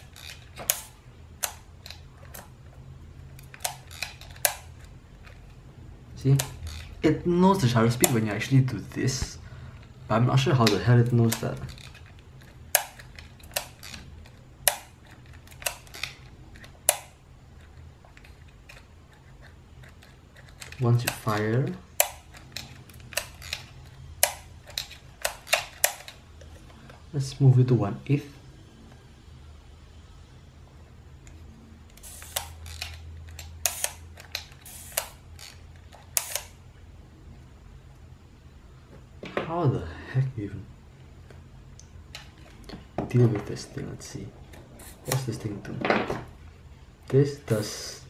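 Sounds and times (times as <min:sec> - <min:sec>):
film winding ratchet: 0:00.0 - 0:02.4, 0:06.4 - 0:07.0, 0:32.0 - 0:36.5.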